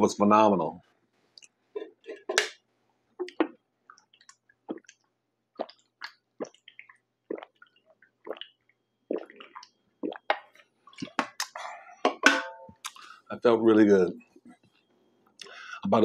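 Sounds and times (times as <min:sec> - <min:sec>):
person gulping a drink: 0:03.2 - 0:11.7.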